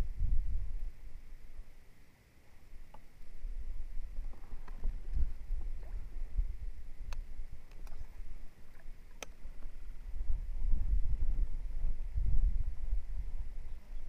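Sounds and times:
rumbling in plastic kayak: 3.4 - 13.6
fishing rod and reel clicks: 7.0 - 8.1, 8.7 - 9.8.

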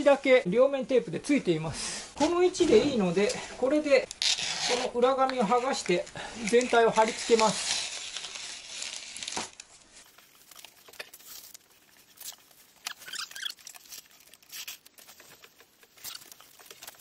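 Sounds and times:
foil insulation crinkling: 2.4 - 17.0
tape backing being peeled: 4.0 - 17.0.

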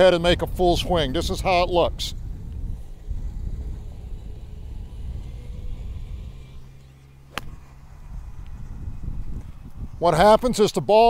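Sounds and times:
low background rumble: 0.0 - 11.0
golf club striking ball: 7.2 - 8.6.

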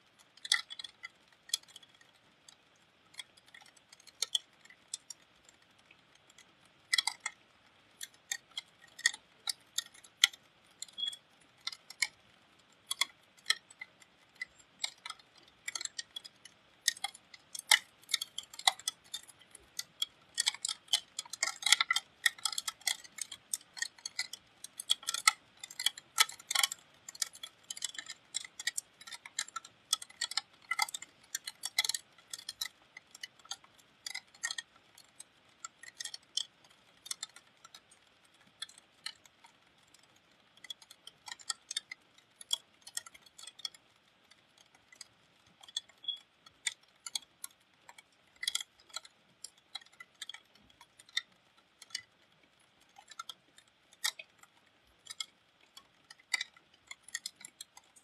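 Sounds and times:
raindrops ticking on hard surface: 0.0 - 58.0.

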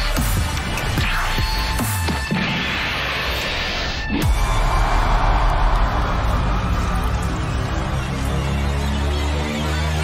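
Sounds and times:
electronic dance music: 0.0 - 4.6.

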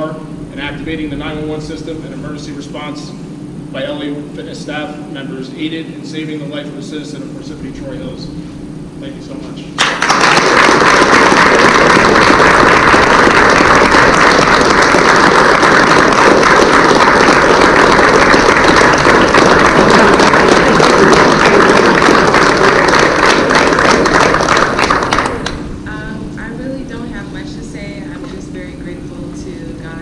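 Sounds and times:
crowd applauding: 9.8 - 25.6.

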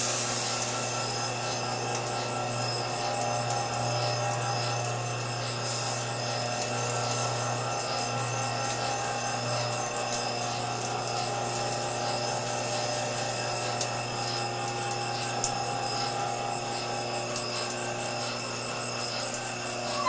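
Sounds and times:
machine hum with tones: 0.0 - 20.0.

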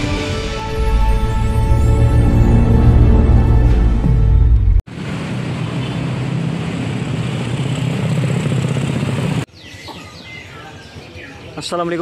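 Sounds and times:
quiet street sound: 1.2 - 12.0
motorcycle engine droning: 4.9 - 9.5
small birds chirping: 9.5 - 12.0.

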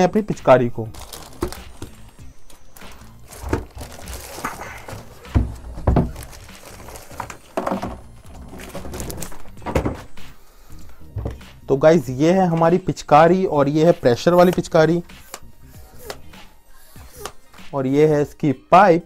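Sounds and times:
plastic packaging crinkling: 0.8 - 9.6
plastic parts knocking on table: 5.2 - 6.3.

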